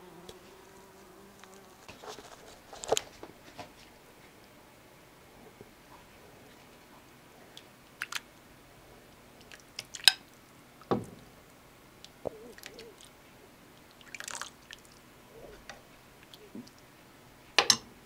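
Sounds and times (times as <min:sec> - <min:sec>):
liquid splashing: 0:07.5 - 0:08.3, 0:13.8 - 0:15.0.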